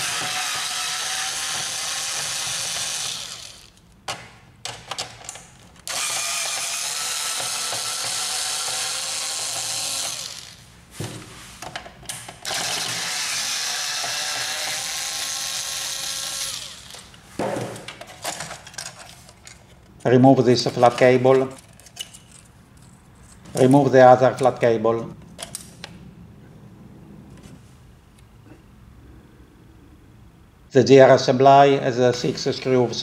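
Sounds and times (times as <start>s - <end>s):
electric screwdriver motor whining: 0.0s - 3.8s, 5.9s - 10.6s, 12.4s - 17.1s.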